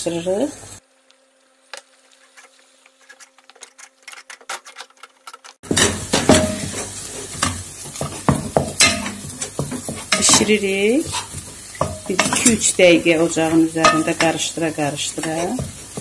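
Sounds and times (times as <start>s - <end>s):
dough sizzling in pan: 0.0s - 4.4s, 5.6s - 16.0s
spoon scraping and knocking pot: 5.6s - 16.0s.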